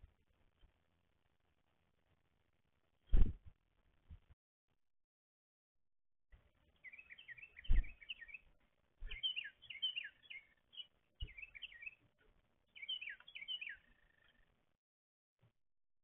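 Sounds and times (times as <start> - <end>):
low thumps: 3.1 - 3.5
songbirds chattering: 6.6 - 14.5.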